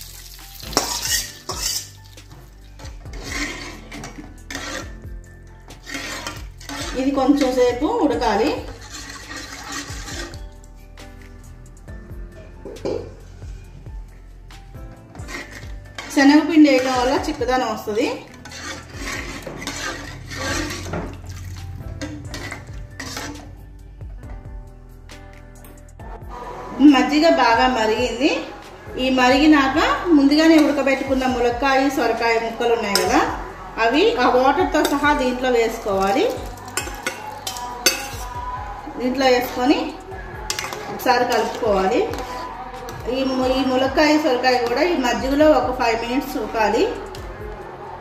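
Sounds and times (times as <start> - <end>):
spatula scraping a pan: 0.0 - 11.4, 12.6 - 13.8, 14.7 - 23.9, 29.3 - 45.4
spatula clinking against pan: 36.6 - 38.4, 40.5 - 41.6.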